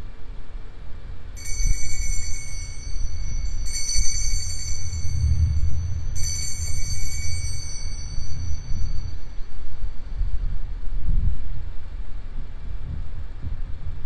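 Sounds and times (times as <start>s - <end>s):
altar bells jingling: 1.4s - 9.6s
low rumble: 1.4s - 12.2s.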